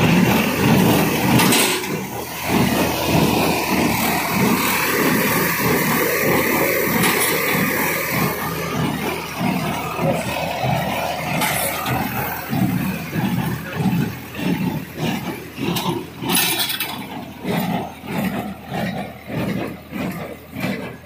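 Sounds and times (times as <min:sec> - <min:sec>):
baler rhythmic clatter: 0:00.0 - 0:21.0
tractor engine running: 0:00.0 - 0:21.0.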